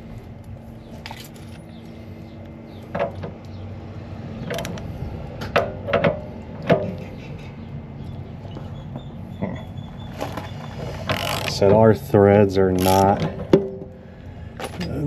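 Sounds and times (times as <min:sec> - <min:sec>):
ratchet wrench clicking: 0:12.8 - 0:13.2.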